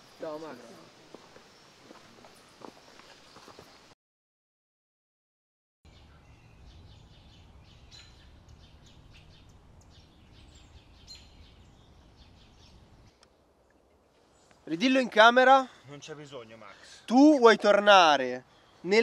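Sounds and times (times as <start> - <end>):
bird chirps: 5.9 - 14.8.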